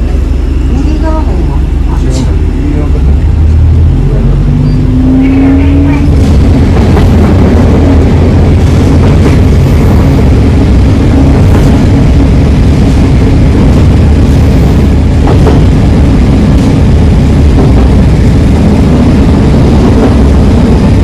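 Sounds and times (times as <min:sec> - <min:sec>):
train rumbling: 0:00.0 - 0:21.0.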